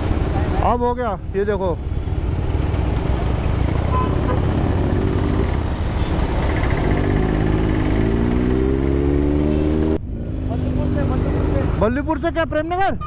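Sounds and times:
motorcycle engine accelerating: 2.1 - 11.8.

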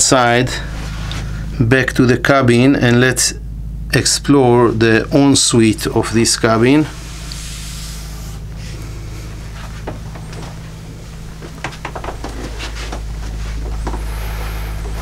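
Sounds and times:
steady low hum: 0.0 - 15.0
light clicks and knocks: 11.4 - 14.1.

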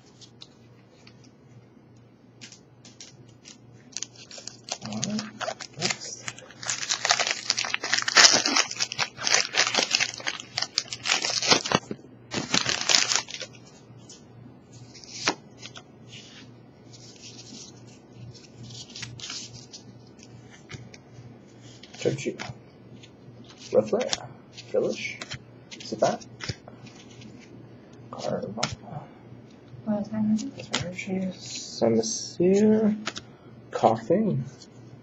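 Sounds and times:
foil wrapper tearing and crinkling: 2.4 - 13.6, 15.0 - 15.8, 18.4 - 19.8.

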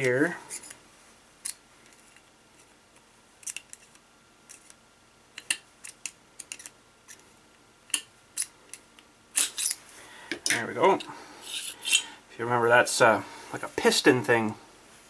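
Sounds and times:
small metal parts clicking: 3.4 - 4.7, 5.4 - 7.2.

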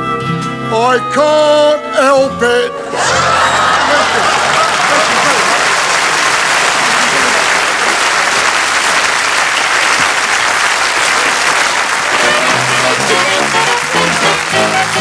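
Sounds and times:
band music with brass: 0.0 - 5.8, 11.0 - 15.0
audience applauding: 3.0 - 15.0.

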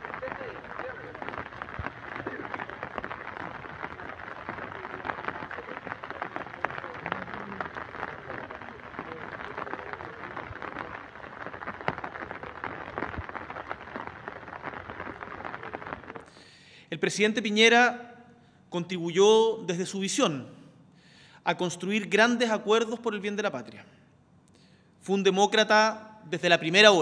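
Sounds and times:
faint indistinct voices: 0.0 - 12.8
crackly clicks and rustles: 0.0 - 16.4.

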